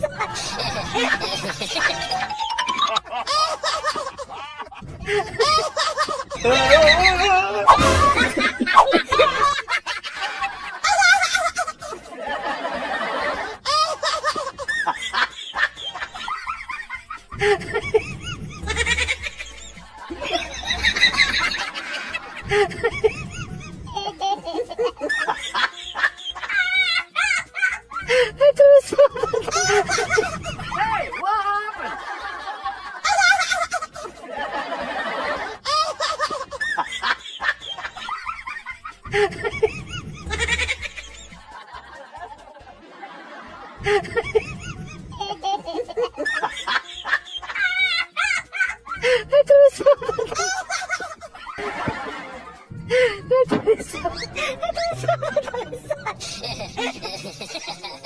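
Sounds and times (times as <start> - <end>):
snickering laughter: 0.0 - 58.0
voice sounds: 6.4 - 9.6.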